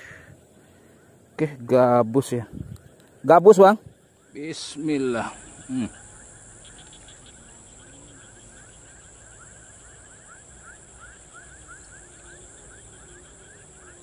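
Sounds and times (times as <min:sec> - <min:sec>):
high-pitched insect buzz: 0:04.0 - 0:14.0.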